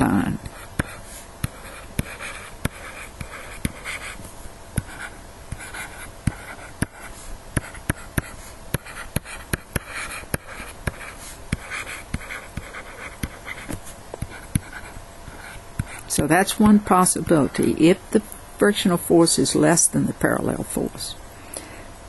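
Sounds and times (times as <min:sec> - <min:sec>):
stylus tapping on tablet: 0:04.8 - 0:14.8.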